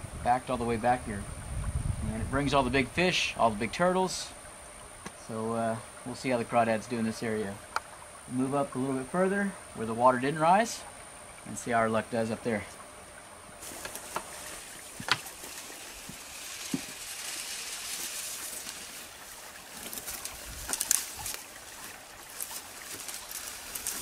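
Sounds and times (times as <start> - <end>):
footsteps through tall grass: 13.6 - 24.0.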